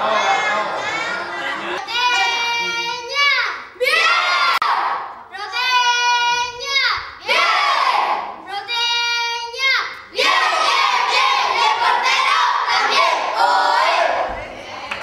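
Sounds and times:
children cheering and shouting: 0.0 - 9.0
children chanting in unison: 6.6 - 8.4, 9.7 - 14.8.

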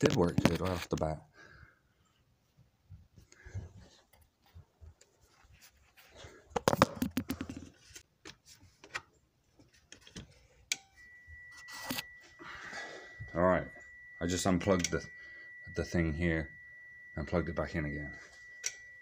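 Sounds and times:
steady high-pitched tone: 10.6 - 19.0.

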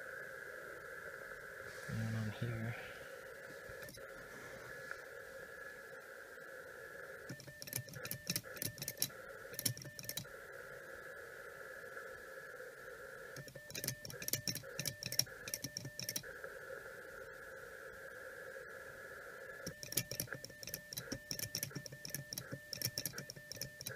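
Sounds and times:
radio receiver hiss: 0.1 - 13.9.

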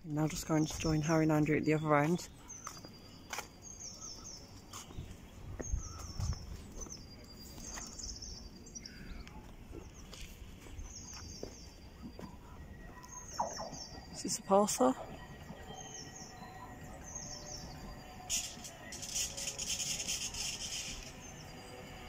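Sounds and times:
songbird singing high notes: 12.8 - 18.3.

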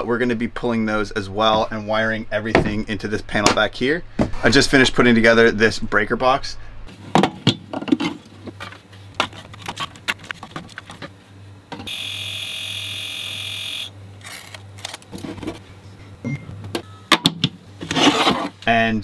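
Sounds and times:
label maker buzzing whir: 11.8 - 14.7.

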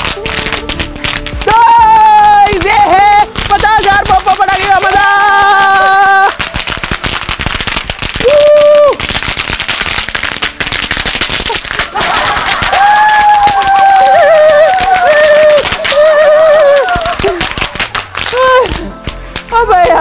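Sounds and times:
feet stamping on concrete: 0.0 - 8.6, 9.6 - 20.0
snap crackers popping: 0.0 - 20.0.

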